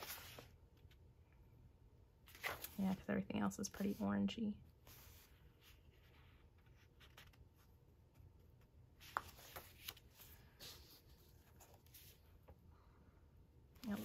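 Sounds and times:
paper pages rustling: 0.0 - 1.0, 2.3 - 3.1, 4.8 - 12.6.

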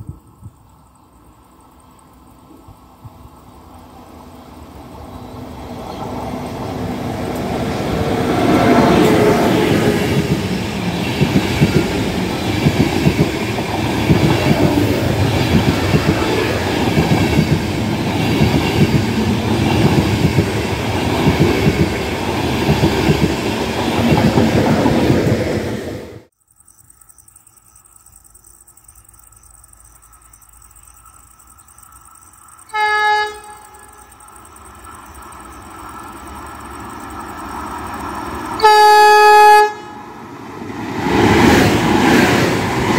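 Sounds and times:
train passing with a rush: 0.0 - 26.3, 30.7 - 42.9
wheels clattering on rails: 5.7 - 25.6.

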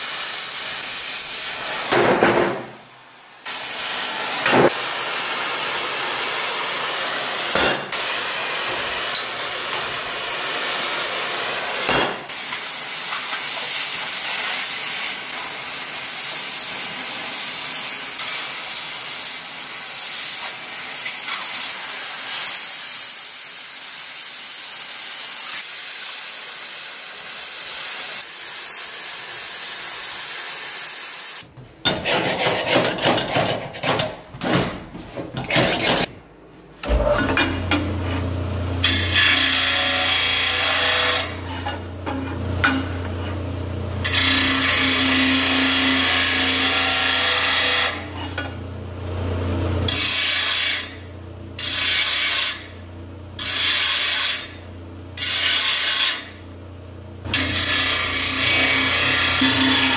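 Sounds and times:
cutting torch hissing: 0.0 - 2.1, 2.8 - 31.5
steel grinding on sander: 38.8 - 42.9, 44.0 - 48.5, 57.3 - 59.9.

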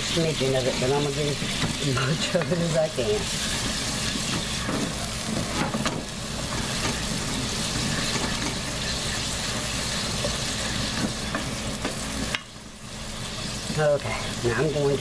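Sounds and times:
liquid sizzling and bubbling in a pot: 0.0 - 15.0
wooden spoon scraping a pot: 0.8 - 12.3.

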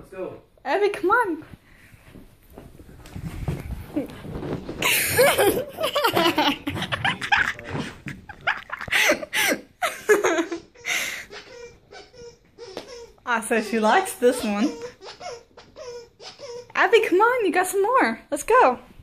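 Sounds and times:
person laughing: 4.8 - 12.1.

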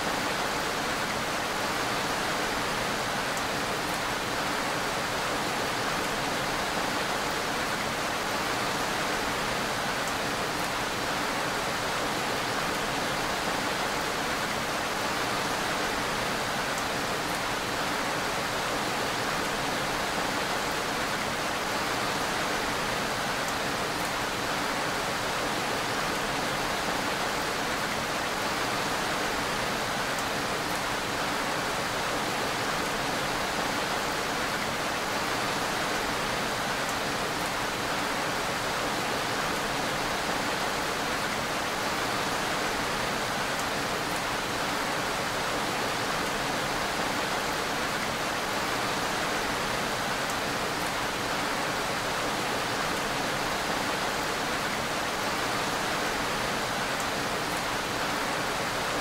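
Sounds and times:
steady rainfall: 0.0 - 59.0.

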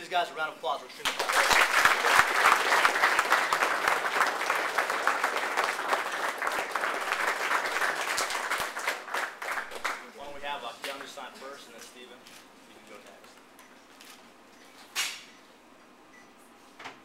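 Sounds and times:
crowd applauding: 1.1 - 10.1.

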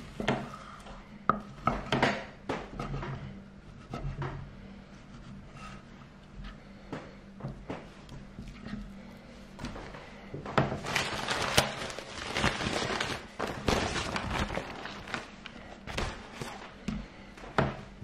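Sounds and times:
rustling: 10.8 - 16.8.

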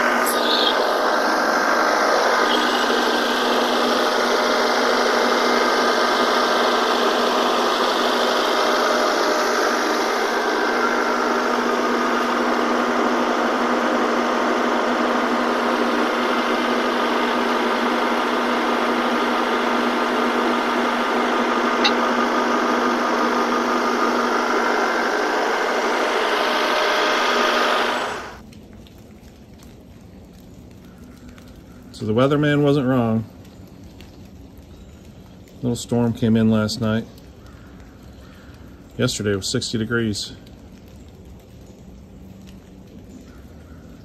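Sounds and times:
tractor diesel engine running: 0.0 - 28.4.

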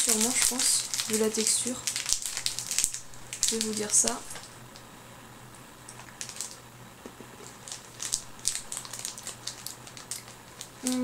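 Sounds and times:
person crunching candies: 0.0 - 4.8, 5.9 - 6.6, 7.4 - 11.0.

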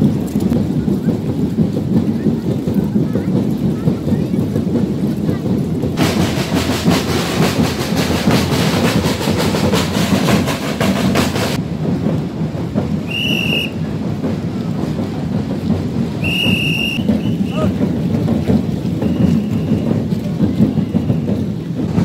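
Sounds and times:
parade drum band: 0.0 - 22.0
whistle blasts: 13.0 - 13.9, 16.2 - 17.7, 19.0 - 21.3.

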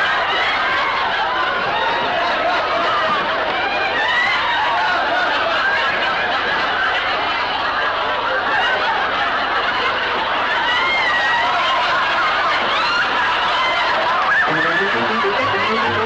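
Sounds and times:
studio audience laughing: 14.5 - 16.0.

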